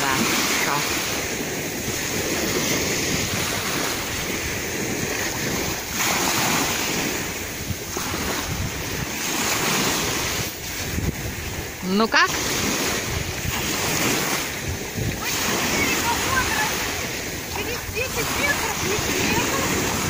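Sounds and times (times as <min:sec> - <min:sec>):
gentle sea waves washing in: 0:00.0 - 0:20.0
wind on microphone: 0:00.0 - 0:20.0.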